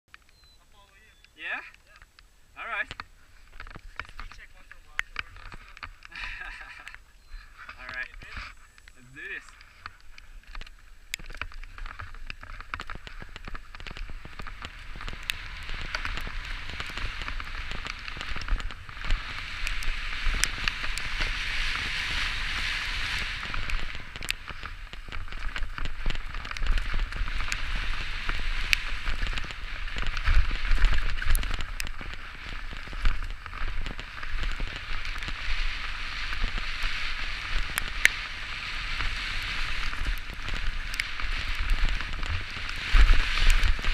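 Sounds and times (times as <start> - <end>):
bike tyres on gravel: 0.1 - 43.9
wind rumble on microphone: 2.7 - 43.9
bike clicks and knocks: 9.5 - 20.9.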